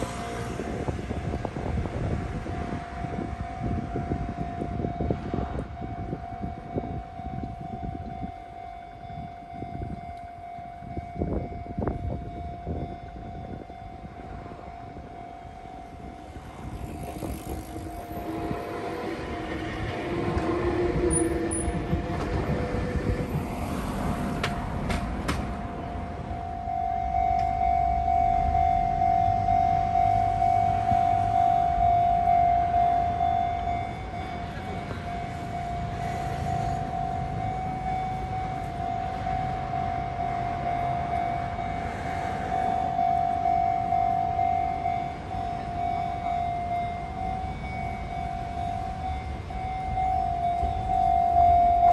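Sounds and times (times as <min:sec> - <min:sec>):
train rumble: 0:00.0 - 0:51.9
level crossing warning bell ringing: 0:01.8 - 0:24.8, 0:25.5 - 0:51.9
low rumble: 0:15.6 - 0:26.5.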